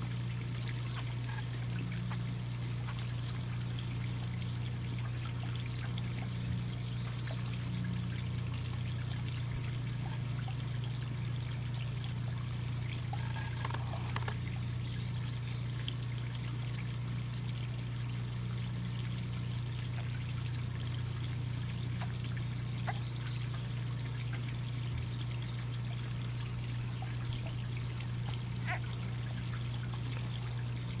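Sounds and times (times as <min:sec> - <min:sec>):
faint ticks: 0:00.3 - 0:03.6, 0:12.8 - 0:14.9, 0:21.8 - 0:24.4.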